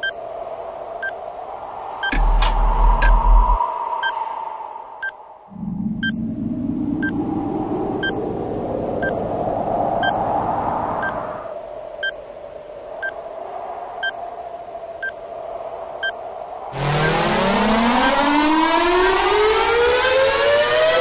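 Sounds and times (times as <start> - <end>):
electronic countdown beeps: 2.0 - 3.4, 16.8 - 17.3, 17.9 - 18.3
electronic drone: 2.0 - 11.2, 16.8 - 21.0.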